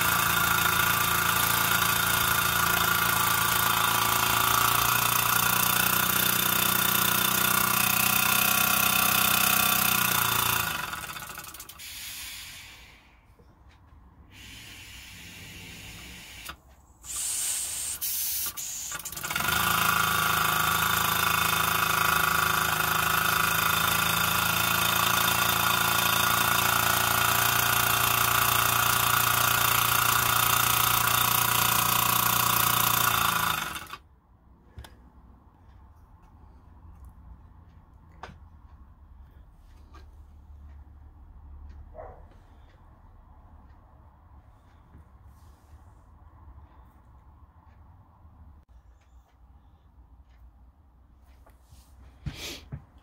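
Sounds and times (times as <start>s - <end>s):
model steam engine running: 0.0s - 13.0s, 14.3s - 34.0s.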